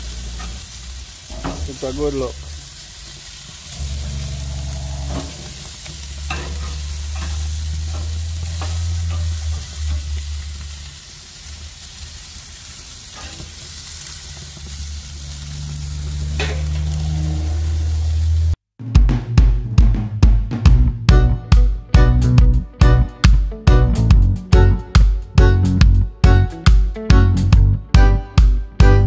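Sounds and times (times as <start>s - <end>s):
chicken sizzling on a grill: 0.0s - 18.6s.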